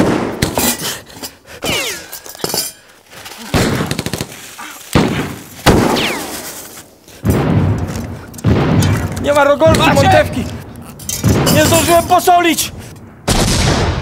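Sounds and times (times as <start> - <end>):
bursts of gunfire: 3.5 - 6.6
bullet ricochet whine: 5.0 - 6.5
rifle shots: 5.0 - 10.3, 13.3 - 14.0.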